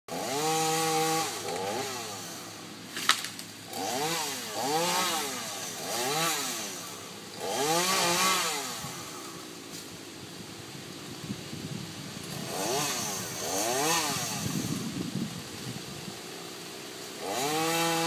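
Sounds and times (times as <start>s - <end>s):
chainsaw revving: 0.1s - 9.9s, 12.1s - 18.0s
sharp crack: 2.9s - 3.6s.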